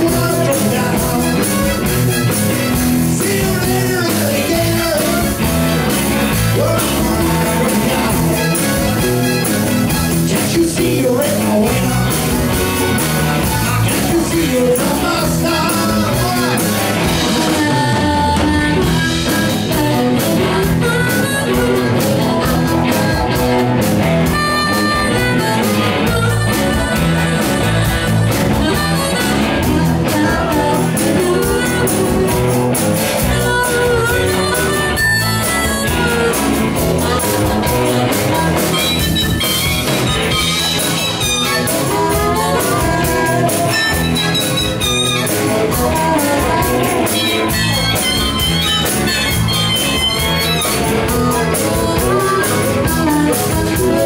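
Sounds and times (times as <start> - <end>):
drums: 0.0 - 54.0
electric guitar: 0.0 - 54.0
harmonica wailing: 0.0 - 54.0.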